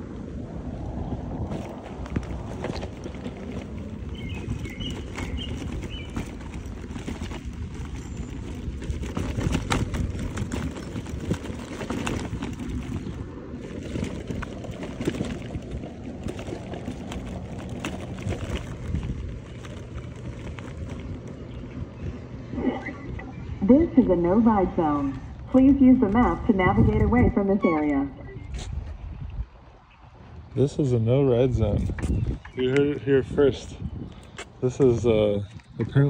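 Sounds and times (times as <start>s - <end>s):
scooter wheels rumbling on grass: 0.0s - 36.0s
wind on microphone: 0.0s - 36.0s
small rattles and knocks: 1.5s - 21.8s.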